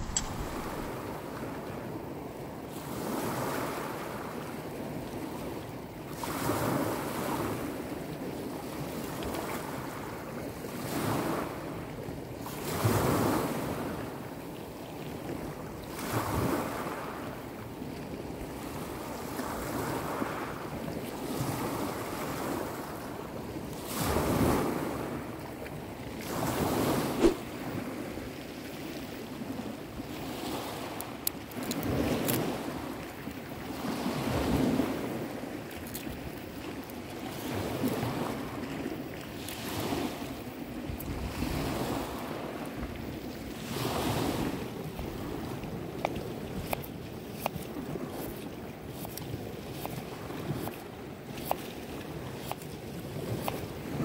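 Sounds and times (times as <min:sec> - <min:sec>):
sharp click: 0:00.0 - 0:01.0, 0:27.2 - 0:27.4
waves washing over shingle beach: 0:00.0 - 0:14.2, 0:15.2 - 0:17.4, 0:18.2 - 0:54.0.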